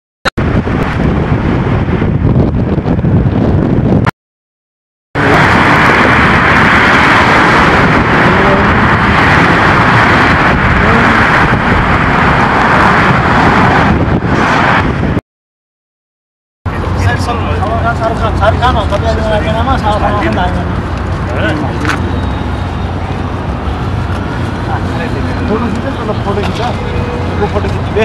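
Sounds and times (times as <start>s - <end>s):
road traffic noise: 0.4s - 4.1s, 5.2s - 15.2s, 16.7s - 28.0s.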